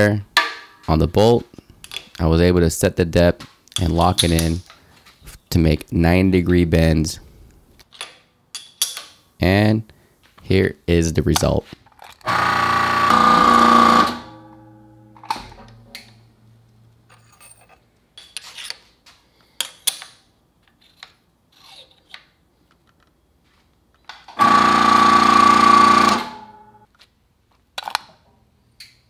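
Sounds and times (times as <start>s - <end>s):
electric hydraulic pump running: 12.3s - 14.3s, 24.4s - 26.8s.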